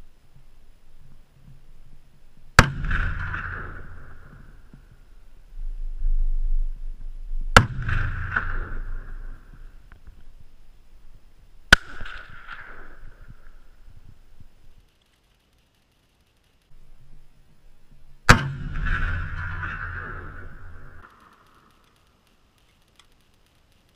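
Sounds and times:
rifle shots with echoes: 2.6s - 5.2s, 7.5s - 9.8s, 11.7s - 13.8s, 18.3s - 21.7s.

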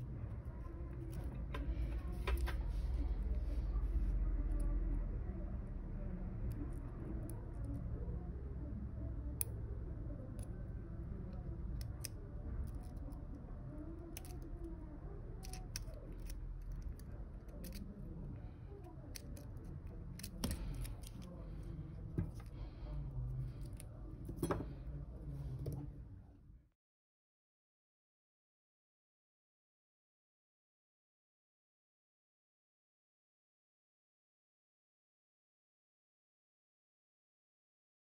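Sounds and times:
steady low hum: 0.0s - 26.7s.

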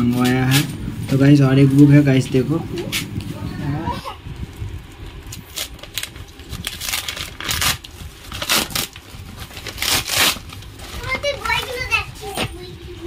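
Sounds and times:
plastic mailer tearing and crinkling: 4.8s - 11.8s.

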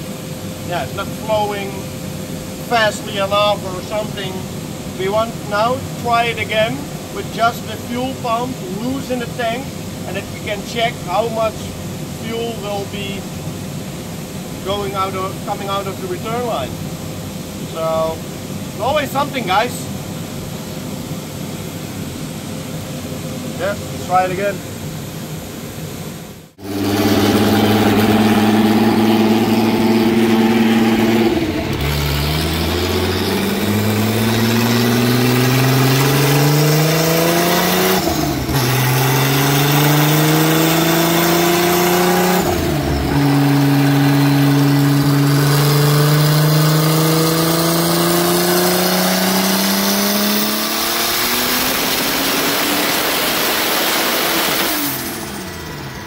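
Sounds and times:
car engine revving: 26.5s - 56.0s.

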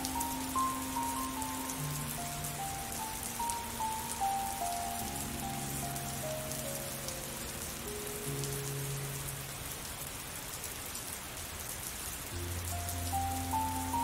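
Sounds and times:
soft slow music: 0.0s - 10.0s, 12.3s - 14.0s
steady rain patter: 0.0s - 14.0s.

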